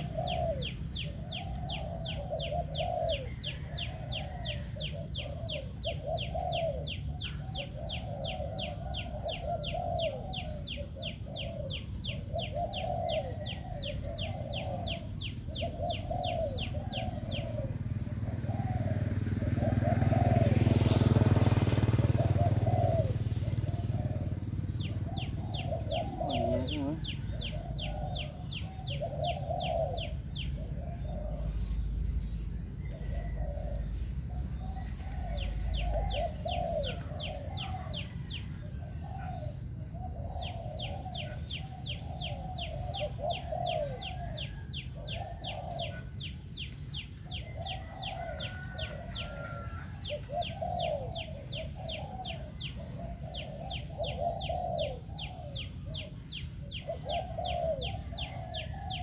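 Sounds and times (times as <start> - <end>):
dove cooing: 0.0 - 59.0
fast pulsing chirr: 14.6 - 38.7.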